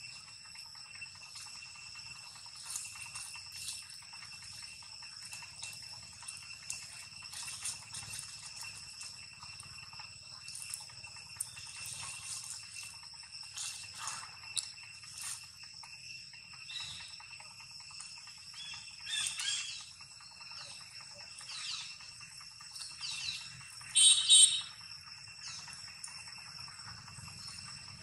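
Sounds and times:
high-pitched insect drone: 0.0s - 28.0s
high chirping calls: 16.6s - 17.2s, 18.6s - 24.8s
shrill multi-tone call: 23.0s - 24.8s.

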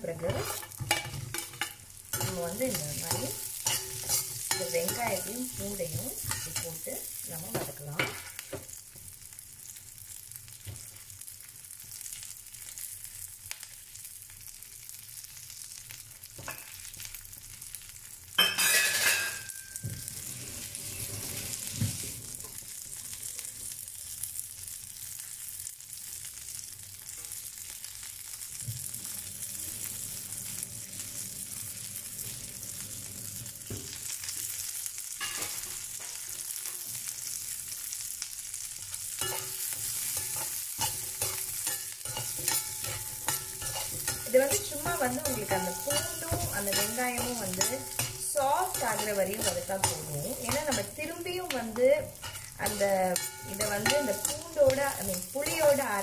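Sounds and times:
gentle frying sizzle: 0.0s - 56.0s
metal spoon scraping pan: 0.1s - 6.9s, 39.2s - 56.0s.

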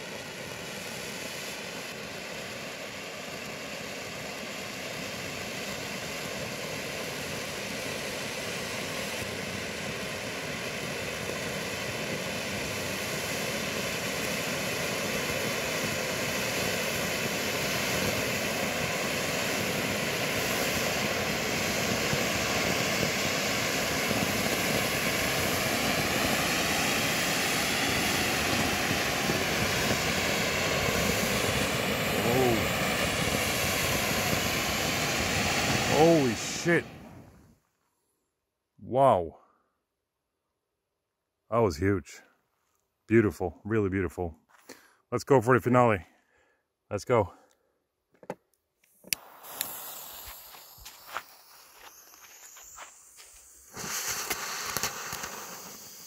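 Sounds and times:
firework fountain hissing: 0.0s - 37.6s, 48.8s - 56.0s.

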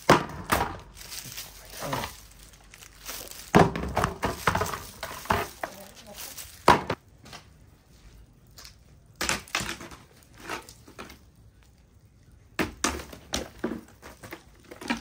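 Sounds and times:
kitchen knocks and clatters: 0.0s - 1.0s, 3.1s - 7.0s.

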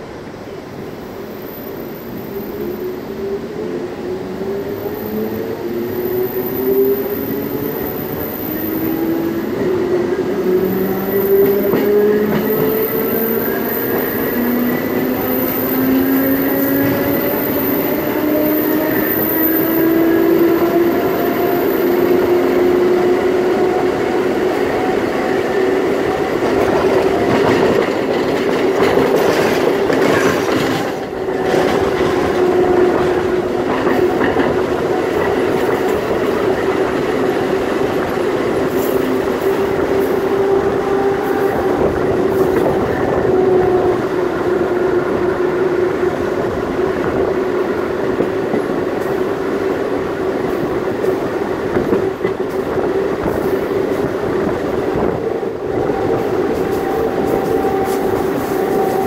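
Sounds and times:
steady train whine: 0.0s - 59.0s
train wheels on rail: 0.0s - 59.0s.

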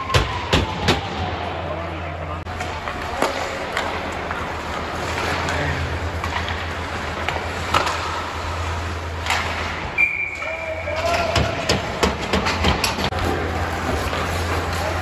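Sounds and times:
skates and sticks clattering on ice: 2.4s - 15.0s
high whistle tone: 9.9s - 11.0s.

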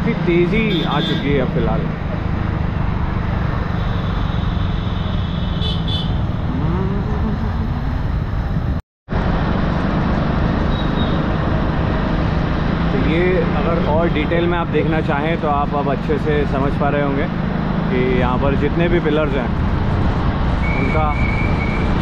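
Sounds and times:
road and traffic rumble: 0.0s - 22.0s
low engine hum: 6.3s - 13.8s.

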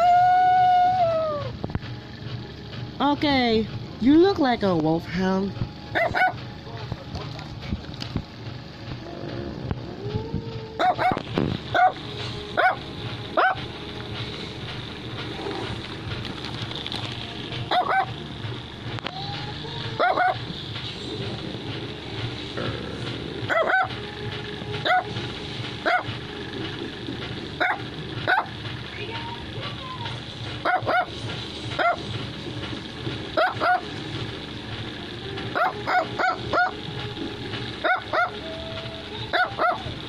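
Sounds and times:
dog yapping: 5.9s - 6.4s, 9.9s - 12.0s, 12.6s - 12.8s, 13.4s - 13.7s, 17.7s - 18.2s, 19.9s - 20.5s, 23.5s - 24.0s, 24.8s - 25.2s, 25.8s - 26.1s, 27.6s - 28.5s, 30.6s - 31.2s, 31.8s - 32.1s, 33.4s - 34.0s, 35.6s - 36.8s, 37.8s - 38.4s, 39.3s - 40.0s.

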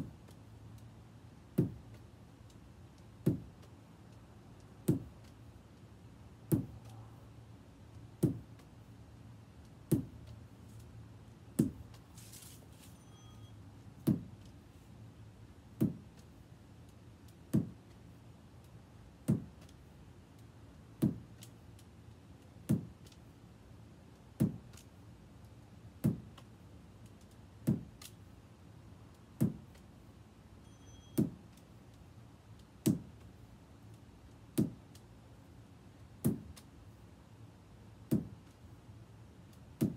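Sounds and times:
lacrosse ball thudding: 11.6s - 12.8s, 14.0s - 14.4s, 15.8s - 16.2s.

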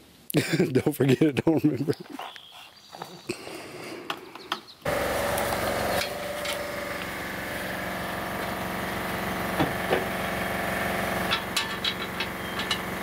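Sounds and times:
motor running: 4.9s - 13.0s.

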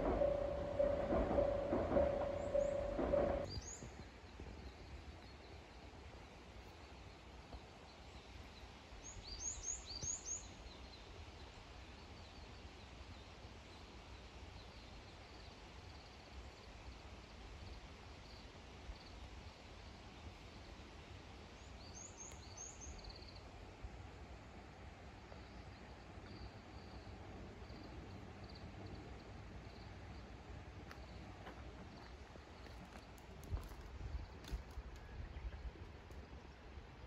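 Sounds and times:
low outdoor rumble: 0.0s - 3.8s
songbird singing: 0.0s - 3.9s.

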